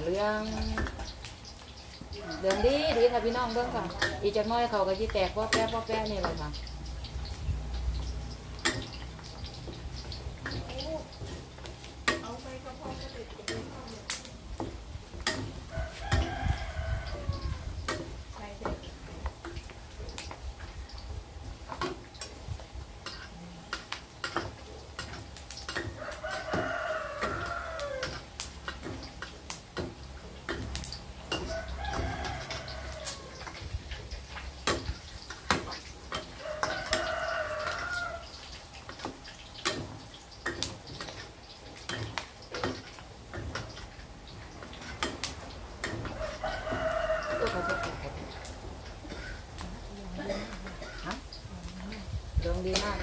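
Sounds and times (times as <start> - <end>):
meat crackling in frying oil: 0.0 - 53.0
metal spatula stirring: 0.4 - 16.8, 23.0 - 49.5
rooster crowing: 2.1 - 4.2, 15.7 - 17.8, 25.8 - 28.2, 31.3 - 33.6, 36.2 - 38.5, 45.9 - 48.6.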